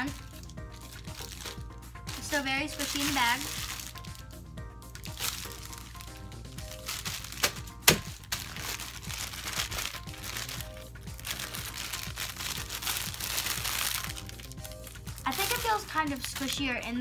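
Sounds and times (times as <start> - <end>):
background music: 0.0 - 17.0
plastic bag crinkling: 0.0 - 17.0
sharp crackles: 5.0 - 16.8.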